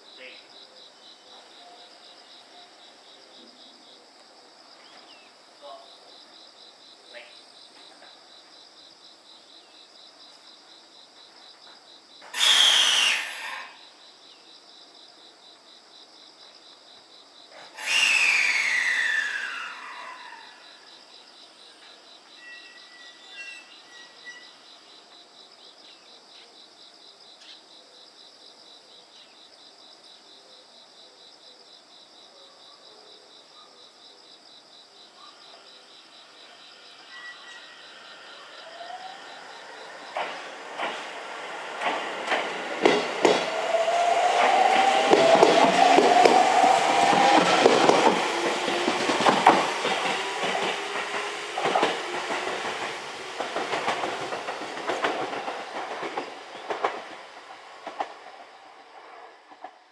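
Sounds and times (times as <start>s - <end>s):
insects chirping: 0.0s - 59.9s
train air vent hissing: 12.4s - 13.7s, 17.8s - 19.7s
falling whistle: 12.4s - 13.8s, 17.8s - 20.8s.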